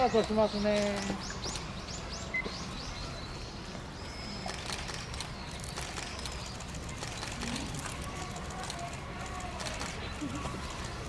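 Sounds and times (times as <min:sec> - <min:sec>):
faint high bird chirps: 0:00.0 - 0:06.7
low background noise: 0:00.0 - 0:11.0.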